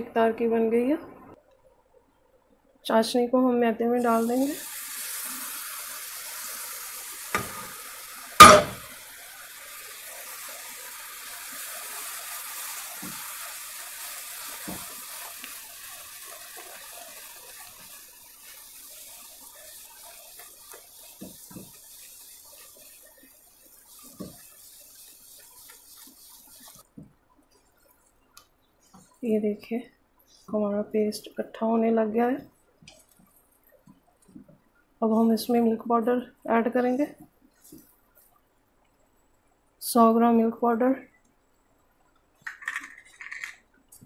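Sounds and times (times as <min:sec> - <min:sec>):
syrup sizzling and bubbling: 0:04.0 - 0:29.3
sharp knock: 0:08.4 - 0:08.8
spatula knocking on pan: 0:08.4 - 0:08.9.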